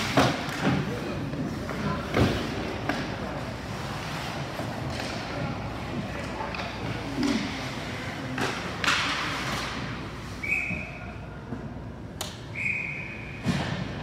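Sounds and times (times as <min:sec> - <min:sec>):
skates scraping ice: 0:00.0 - 0:10.4
stick hitting puck: 0:08.4 - 0:09.7
referee's whistle blasts: 0:10.4 - 0:11.1, 0:12.5 - 0:13.4.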